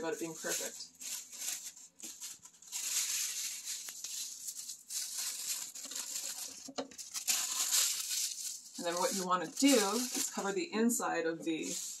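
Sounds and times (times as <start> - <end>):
tissue paper rustling: 0.0 - 12.0.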